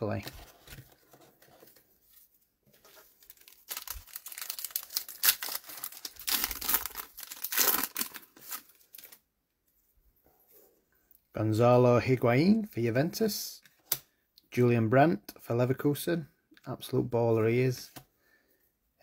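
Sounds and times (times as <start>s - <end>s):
wrapper tearing and crinkling: 3.2s - 9.2s.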